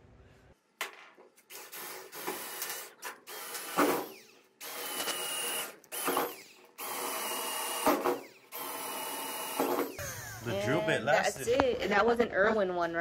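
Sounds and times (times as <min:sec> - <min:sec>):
drill bit grinding into metal: 0:01.5 - 0:10.0
cordless drill whining: 0:01.5 - 0:10.5.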